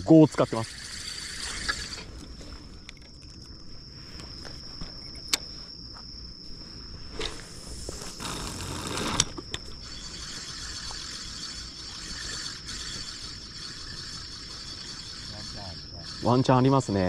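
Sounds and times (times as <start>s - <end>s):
fishing reel clicking: 0.0s - 2.1s, 7.2s - 17.0s
fishing reel whirring: 0.0s - 3.2s, 7.1s - 17.0s
high insect trill: 0.0s - 17.0s.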